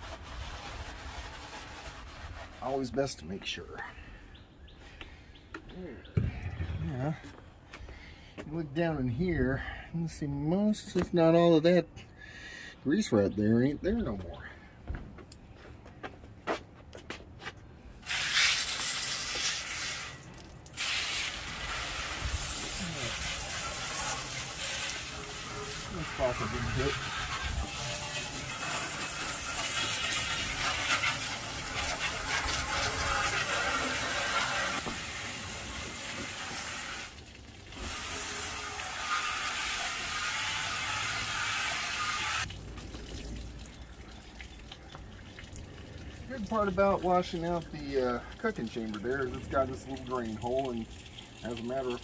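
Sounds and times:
hose nozzle spraying water on metal: 18.0 - 42.5.

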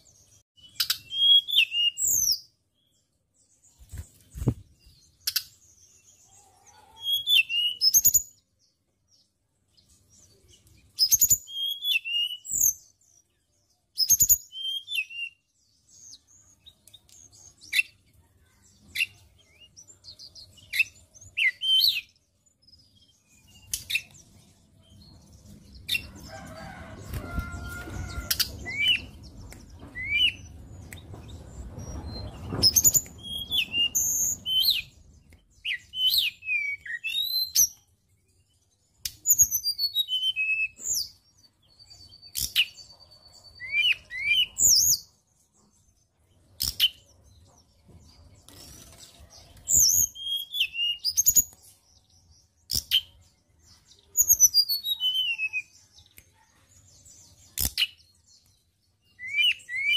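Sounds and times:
bird singing high whistled notes: 0.6 - 2.5, 7.0 - 8.4, 11.0 - 13.0, 14.0 - 16.8, 19.0 - 24.2, 27.2 - 30.6, 31.8 - 37.8, 39.2 - 41.1, 42.1 - 45.1, 49.6 - 52.2, 53.9 - 55.9, 59.0 - 59.9
bird fluttering in cage: 3.7 - 5.0, 26.1 - 29.1, 31.2 - 34.6.

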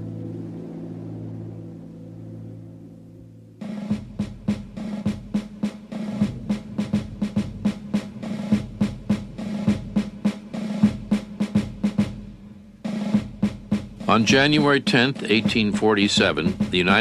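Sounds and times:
marching snare drum cadence: 3.6 - 17.0.

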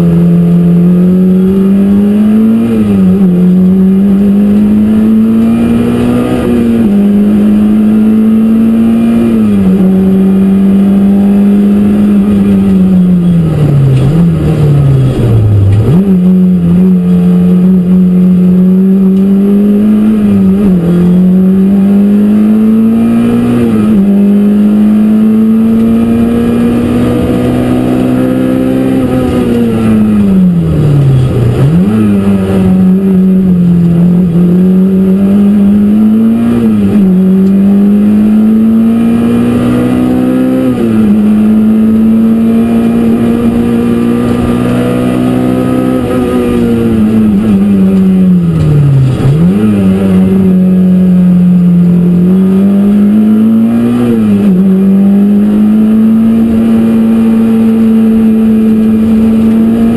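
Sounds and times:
car engine revving through gears: 0.0 - 59.9.

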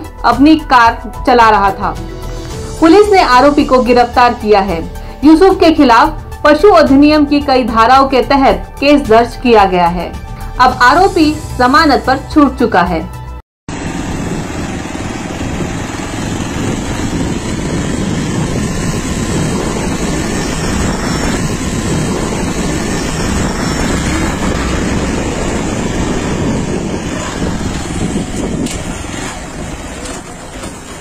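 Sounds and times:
wind rushing: 13.7 - 30.1
road noise: 13.7 - 31.0.

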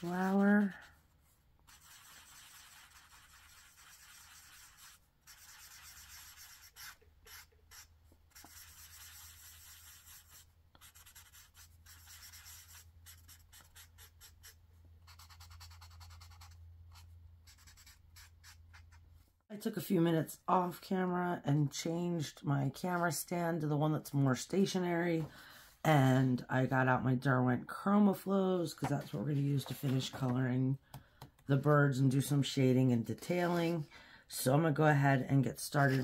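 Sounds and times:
marker scrubbing on paper: 0.0 - 19.0, 35.8 - 36.0.

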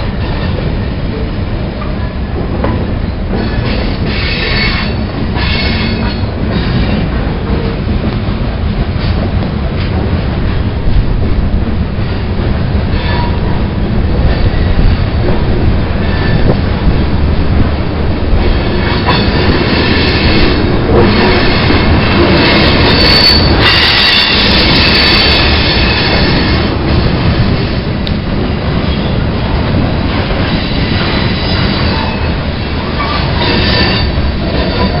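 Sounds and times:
train wheels rumbling on rails: 0.0 - 35.0
high-pitched wheel squeal: 22.4 - 26.6, 30.6 - 35.0.

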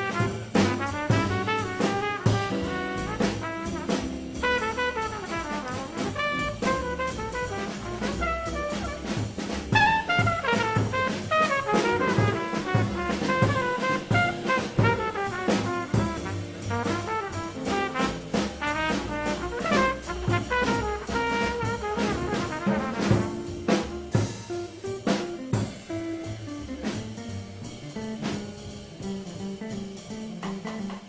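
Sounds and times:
horn playing quick runs: 0.0 - 24.3
bebop jazz band: 0.0 - 31.0.

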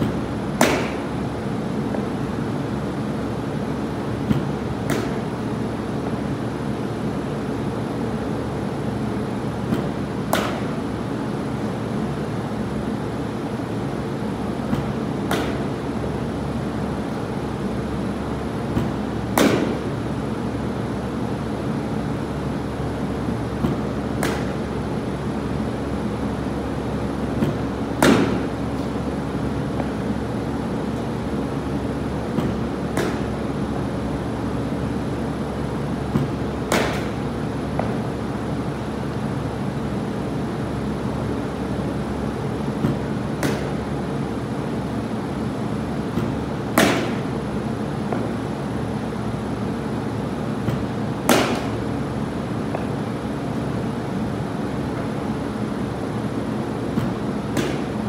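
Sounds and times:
bat cracking ball: 0.0 - 1.3, 4.2 - 5.3, 9.7 - 10.8, 14.7 - 15.8, 18.7 - 19.9, 23.6 - 24.7, 27.4 - 29.0, 32.3 - 33.4, 36.1 - 38.0, 42.8 - 43.9, 46.1 - 47.3, 50.6 - 51.9, 56.8 - 58.0
mechanical hum: 0.0 - 58.0.

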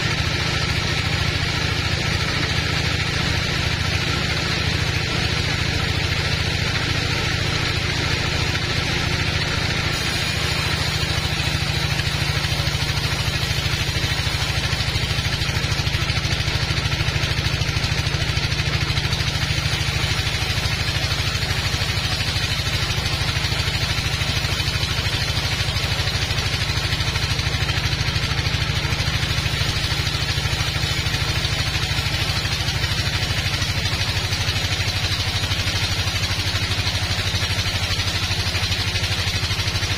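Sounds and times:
band saw drive drone: 0.0 - 39.9
saw blade hissing through wood: 8.0 - 39.9.

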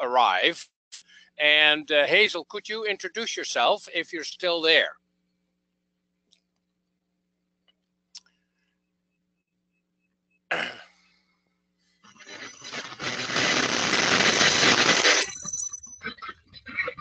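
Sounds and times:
sharp static burst: 12.1 - 15.5
loud rushing hiss: 12.3 - 15.3.

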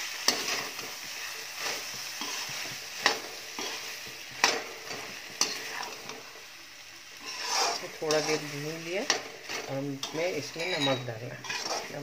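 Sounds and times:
food sizzling: 0.0 - 12.0
metal spatula scraping pan: 0.3 - 6.2, 7.2 - 12.0
spatula clinking against pan: 10.0 - 11.8.

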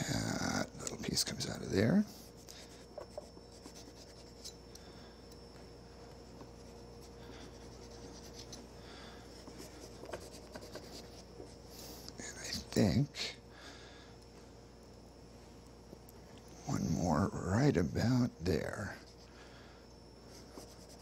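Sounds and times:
knife scraping melon rind: 2.4 - 4.6.

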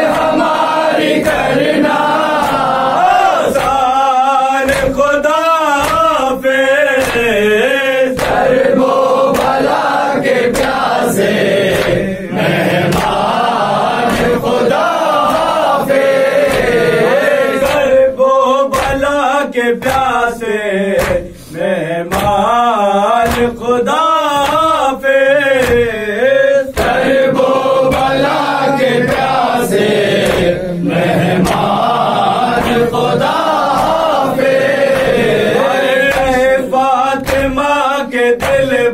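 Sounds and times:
chest-beating slaps: 0.0 - 4.0, 4.6 - 6.3, 6.9 - 18.0, 18.7 - 19.2, 19.8 - 20.2, 20.9 - 21.4, 22.1 - 22.5, 23.2 - 23.7, 24.3 - 24.9, 25.5 - 26.0, 26.7 - 37.8, 38.4 - 38.8
men chanting a lament: 0.0 - 38.9.

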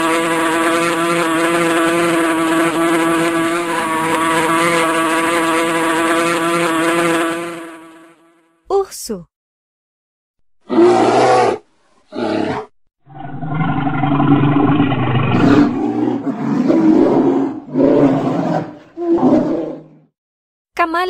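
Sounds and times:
bear roaring: 10.6 - 20.1.

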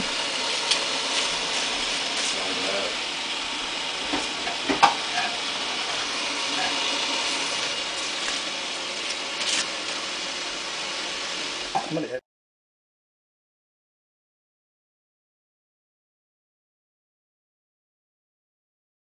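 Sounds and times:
steady hiss: 0.0 - 12.2
corn husks rustling: 6.7 - 10.2.

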